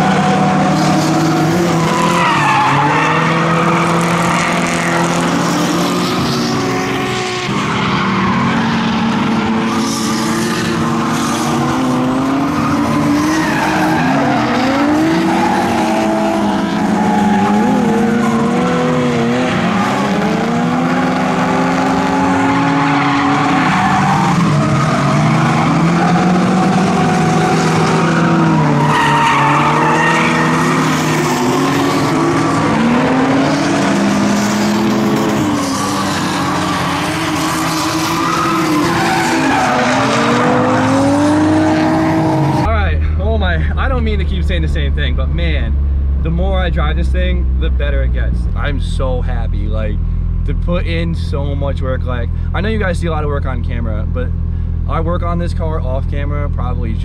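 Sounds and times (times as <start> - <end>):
car engine revving: 0.0 - 57.0
tyres squealing: 0.8 - 4.2, 22.1 - 33.5, 34.9 - 41.2.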